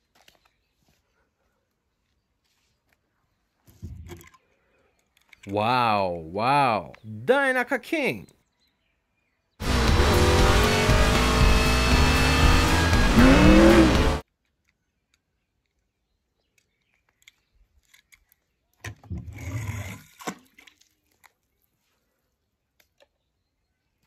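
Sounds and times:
car sound effects gliding: 9.6s - 14.2s
loud music: 9.6s - 14.2s.

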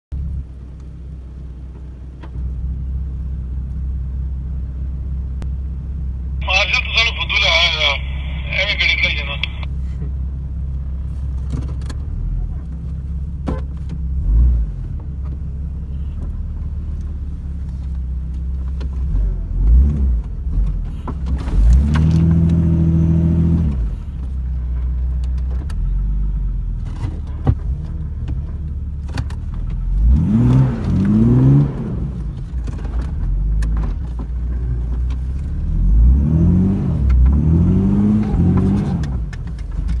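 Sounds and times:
vehicle engine revving: 14.1s - 15.0s, 19.0s - 24.0s, 29.8s - 33.7s, 35.5s - 40.0s.

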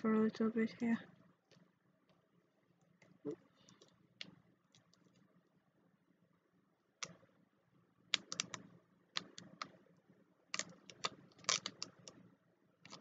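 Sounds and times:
vinyl decal clicking and crackling: 8.1s - 9.8s, 10.5s - 12.2s, 12.8s - 13.0s.

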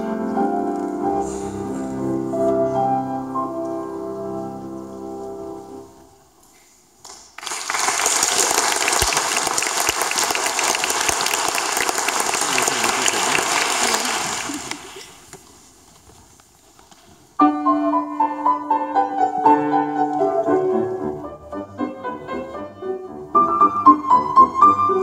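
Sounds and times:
piano duet: 0.0s - 6.2s, 17.4s - 25.0s
audience applauding: 7.0s - 15.4s.

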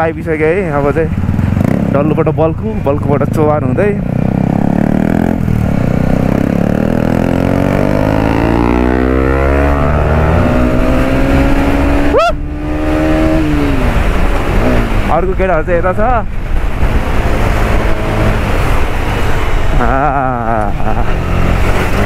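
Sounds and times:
motorcycle engine accelerating: 0.0s - 22.0s.

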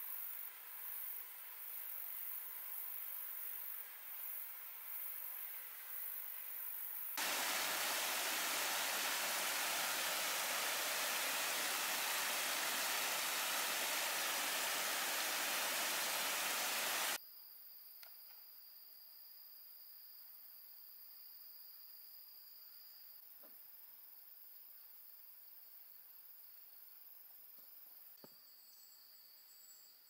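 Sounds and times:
stream water rushing: 7.2s - 17.2s.

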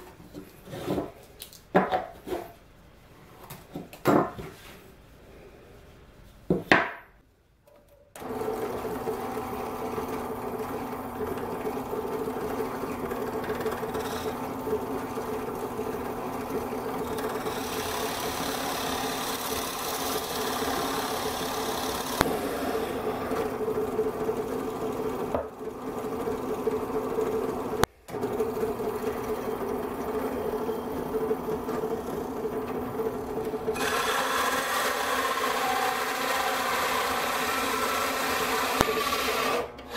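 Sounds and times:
drill press hole saw cutting wood: 8.2s - 39.9s.

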